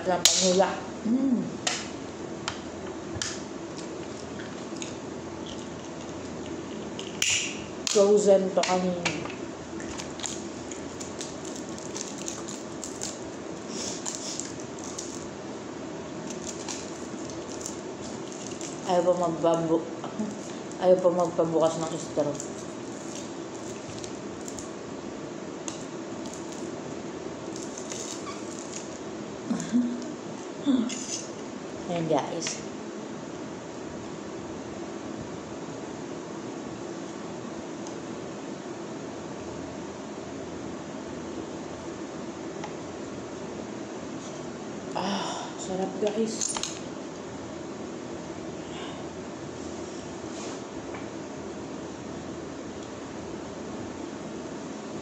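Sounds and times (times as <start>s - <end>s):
plastic straw wrapper crinkling: 9.8s - 15.3s, 16.2s - 19.0s, 20.2s - 24.7s, 25.6s - 26.8s, 27.5s - 29.0s.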